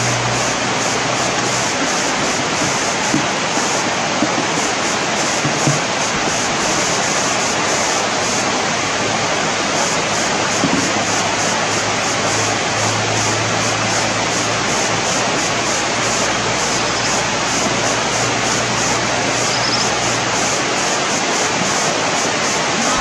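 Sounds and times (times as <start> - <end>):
flowing river water: 0.0 - 23.0.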